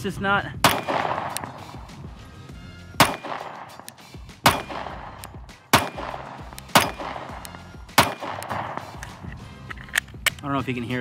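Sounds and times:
pistol shots: 0.6 - 2.0, 3.0 - 9.2.

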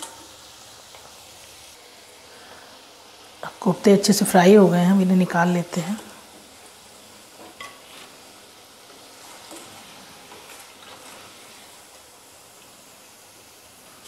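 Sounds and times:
hot oil sizzling: 0.0 - 14.0
spoon tapping pan: 7.4 - 7.8.

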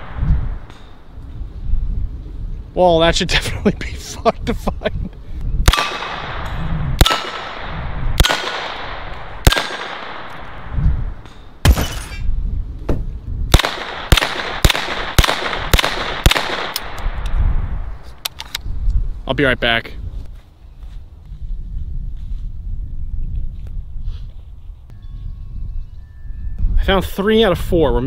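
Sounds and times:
gunshots with echo: 5.6 - 10.7, 13.5 - 17.2.

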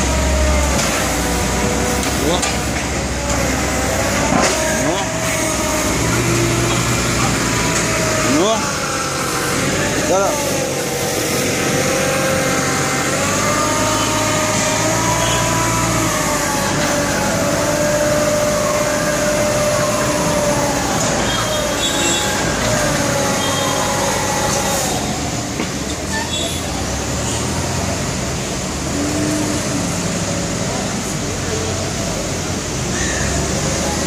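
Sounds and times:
hydraulic lift whining: 0.0 - 34.0
street traffic: 0.0 - 34.0.

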